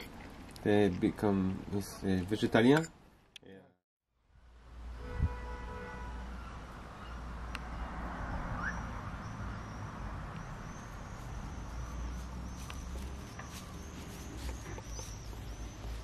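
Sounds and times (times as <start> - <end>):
faint high chirp: 8.6 - 16.0.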